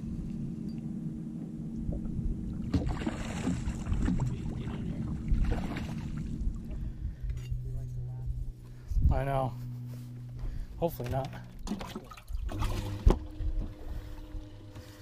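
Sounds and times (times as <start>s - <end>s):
wind rumble: 0.0s - 10.8s
low hum: 0.0s - 15.0s.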